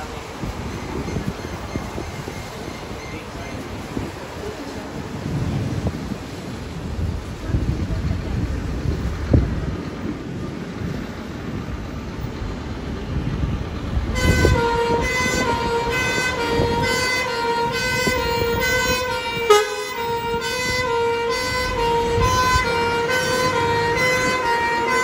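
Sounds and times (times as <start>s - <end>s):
fire engine rumbling: 0.0s - 25.0s
two-tone siren: 14.2s - 25.0s.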